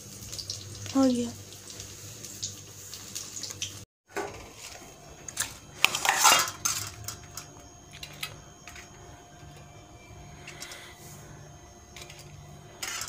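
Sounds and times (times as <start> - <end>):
steel plates and utensils clattering: 5.3 - 8.9, 12.0 - 13.0.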